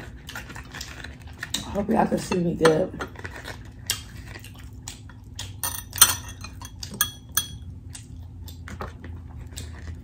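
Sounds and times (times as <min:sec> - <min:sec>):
clinks against glass bowl: 0:05.6 - 0:07.7.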